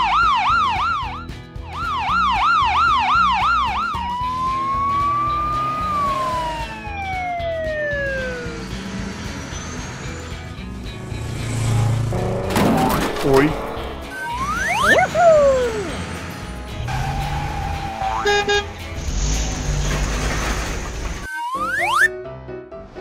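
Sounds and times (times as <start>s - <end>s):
police siren wailing: 0.0s - 8.7s, 14.1s - 16.0s, 21.2s - 22.1s
long rising and falling tone: 0.0s - 10.3s, 13.7s - 18.6s, 21.2s - 22.1s
background music: 0.0s - 20.6s, 21.2s - 23.0s.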